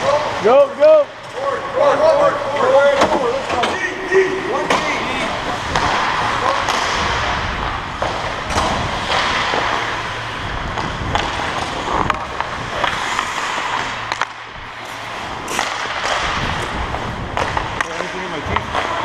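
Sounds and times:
hockey sticks and puck clacking: 2.5 - 19.0
skates scraping on ice: 4.6 - 19.0.

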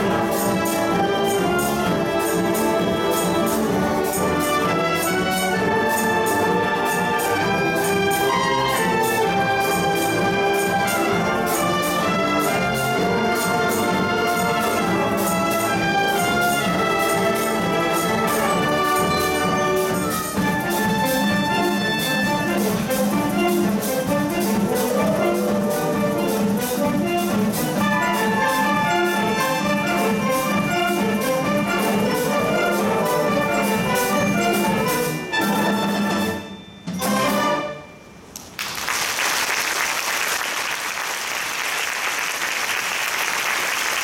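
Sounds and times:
wind band playing: 0.0 - 38.3
audience applause: 38.6 - 44.0.

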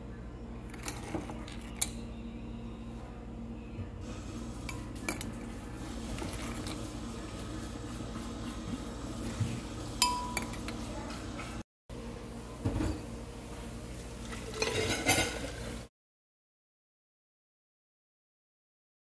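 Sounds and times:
steady low hum: 0.0 - 12.6
metal spoon clinking against glass: 10.0 - 10.7.

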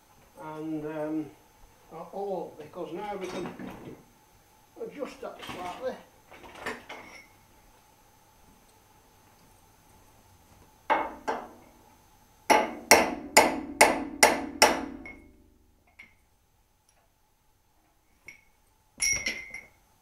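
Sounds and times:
hammer knocking on steel radiator: 12.5 - 15.1.

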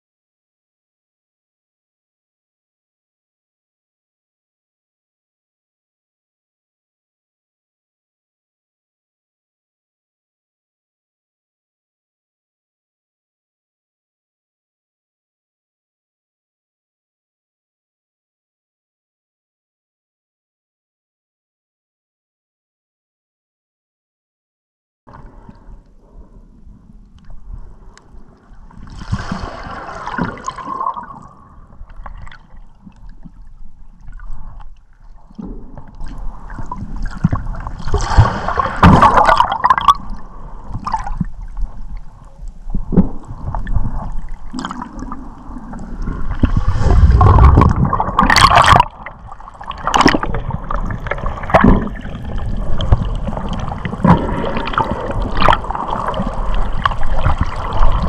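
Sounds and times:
water gurgling and sloshing: 25.1 - 58.0.

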